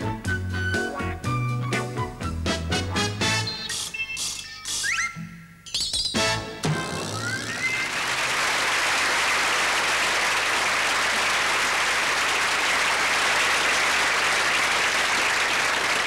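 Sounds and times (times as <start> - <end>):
studio audience applauding: 7.3 - 16.0.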